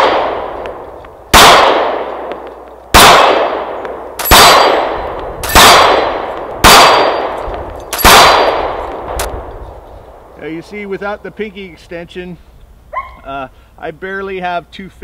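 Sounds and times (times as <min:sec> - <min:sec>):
pistol shots: 0:00.0 - 0:09.4.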